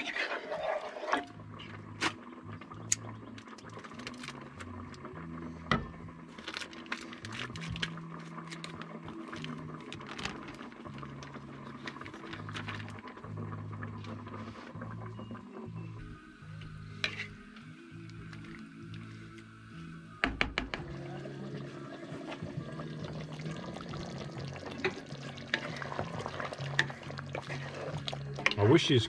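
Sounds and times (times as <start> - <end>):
quiet music with bass line: 1.1 - 29.0
plastic bag crinkling: 3.8 - 4.5, 6.4 - 13.1.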